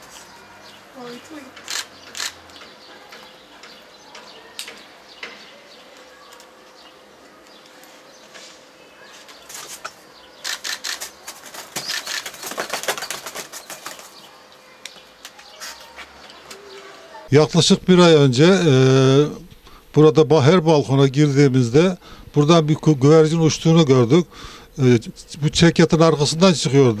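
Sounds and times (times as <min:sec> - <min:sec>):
clicks and rustles: 0:09.2 - 0:16.6
pigeons flapping wings: 0:09.5 - 0:14.4.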